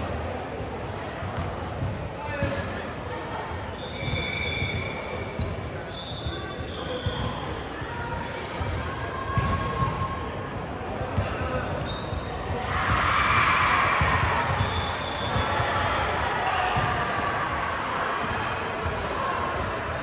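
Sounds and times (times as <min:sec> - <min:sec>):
crowd noise in a hall: 0:00.0 - 0:20.0
basketball bouncing on court: 0:08.6 - 0:10.1, 0:11.1 - 0:15.7, 0:16.7 - 0:17.2.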